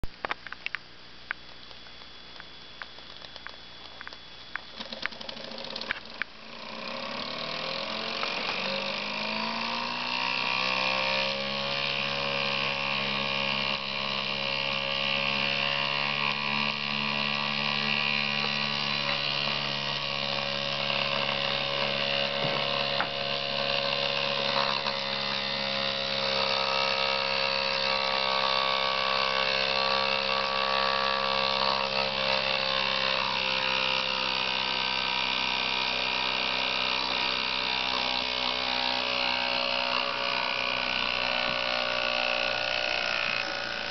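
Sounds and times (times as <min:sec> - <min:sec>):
sharp clicks: 0:00.0 - 0:06.4
miniature steam engine whirring: 0:02.9 - 0:43.9.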